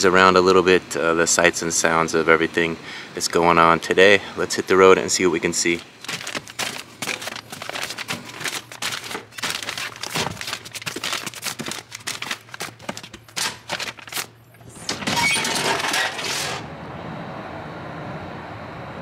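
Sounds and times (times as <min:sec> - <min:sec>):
plastic packages rustling and knocking: 0:05.5 - 0:16.6
metal hopper pulled shut: 0:14.6 - 0:16.7.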